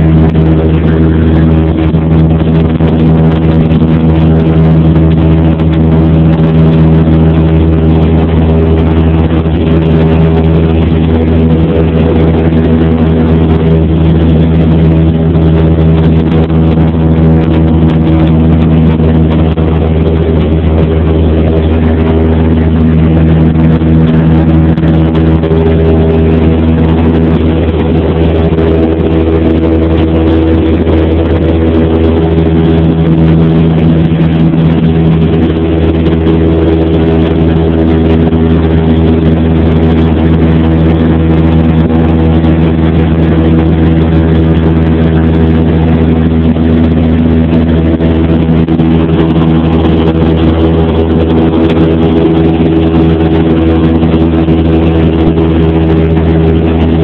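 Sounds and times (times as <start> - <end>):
airplane engine drone in cabin: 0.0 - 57.0.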